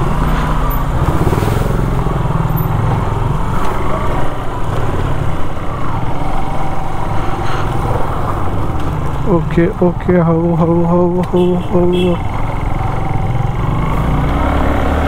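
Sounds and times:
motorcycle engine at low revs: 0.0s - 6.2s.

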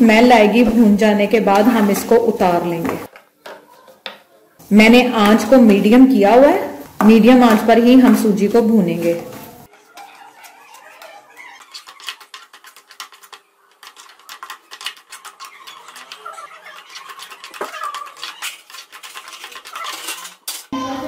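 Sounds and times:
metal spoon scraping frying pan: 9.7s - 20.7s.

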